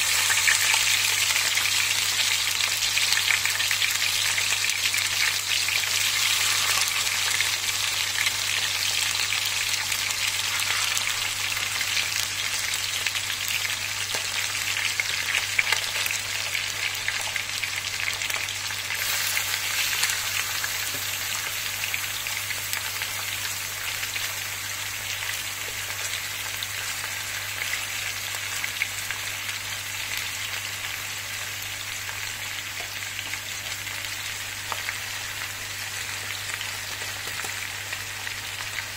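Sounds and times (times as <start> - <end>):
food sizzling in steel pan: 0.0 - 38.9.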